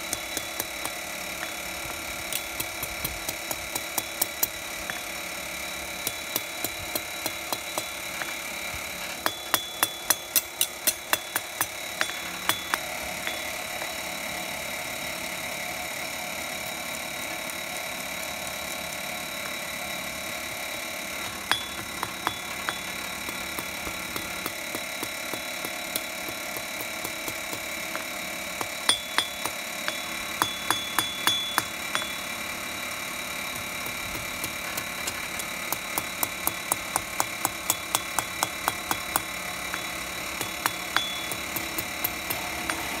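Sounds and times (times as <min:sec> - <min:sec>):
steady mechanical drone: 0:00.0 - 0:43.0
hammer ringing on anvil: 0:09.2 - 0:14.0, 0:21.4 - 0:24.6, 0:28.6 - 0:32.4, 0:37.6 - 0:43.0.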